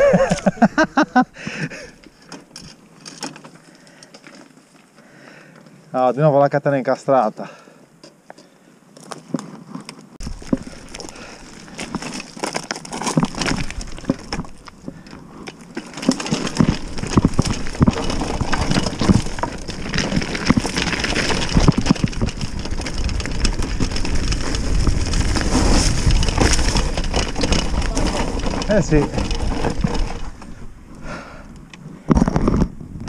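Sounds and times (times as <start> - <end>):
bike rattling and knocking: 9.0 - 31.4
wind rumble on microphone: 16.4 - 31.2, 31.9 - 33.0.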